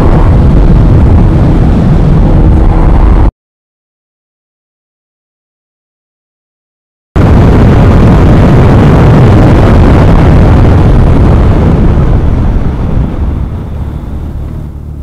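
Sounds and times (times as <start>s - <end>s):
wind buffeting helmet microphone: 0.0s - 3.3s, 7.2s - 15.0s.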